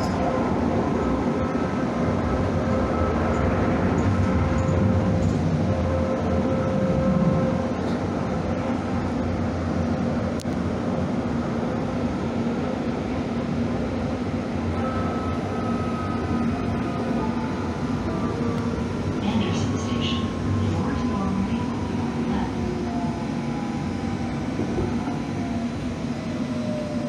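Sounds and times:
light-rail train rumbling: 0.0s - 27.0s.

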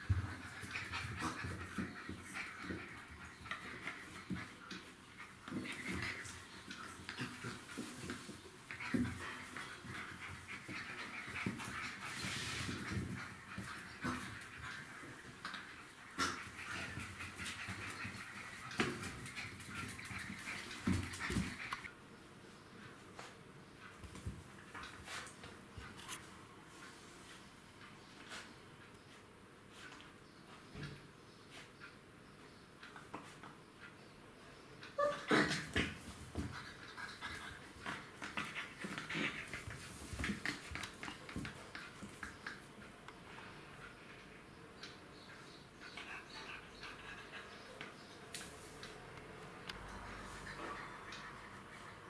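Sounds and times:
puppies whining: 34.9s - 35.5s
paws clicking on hard floor: 35.7s - 42.7s.

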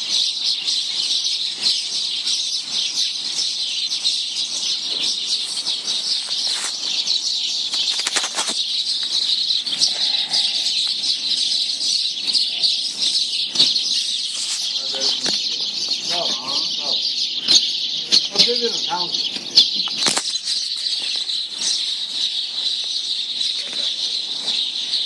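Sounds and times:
small birds chirping: 0.0s - 25.0s
rustling strokes: 5.2s - 9.2s, 14.2s - 14.8s.

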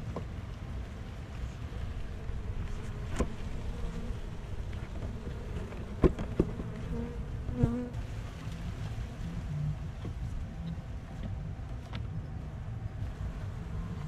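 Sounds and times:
bees buzzing: 1.5s - 8.2s.

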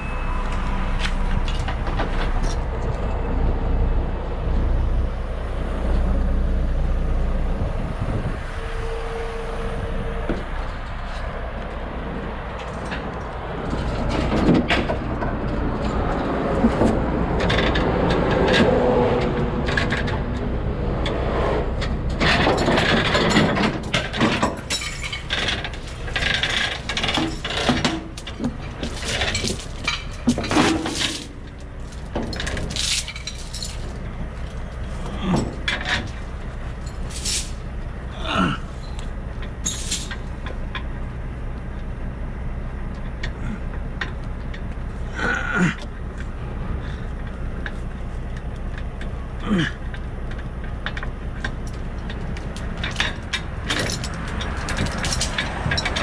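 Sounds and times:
chains clanking and rattling: 12.3s - 18.7s, 21.8s - 40.8s, 50.3s - 56.0s.

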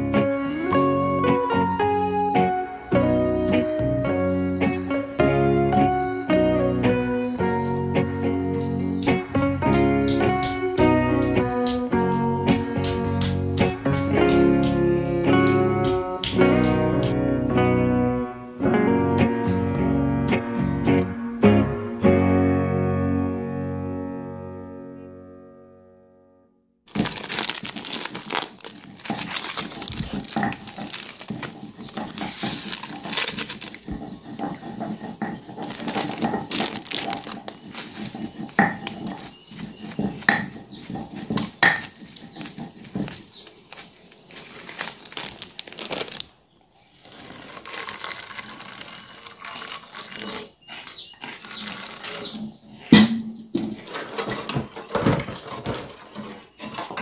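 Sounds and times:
plastic packets crinkling: 26.9s - 52.6s
metal pot and utensils clinking: 28.0s - 43.4s.

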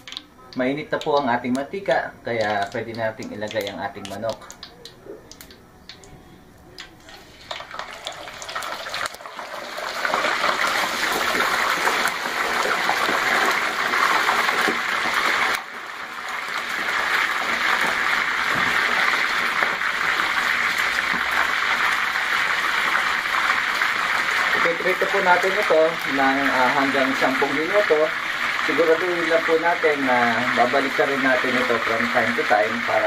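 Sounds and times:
chicken sizzling in hot oil: 7.0s - 33.0s.

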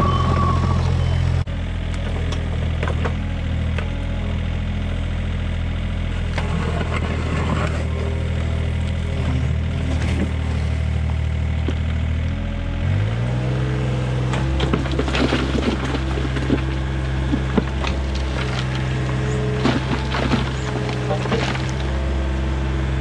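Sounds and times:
excavator diesel engine running: 0.0s - 23.0s
bucket scraping stony soil: 14.6s - 22.1s.

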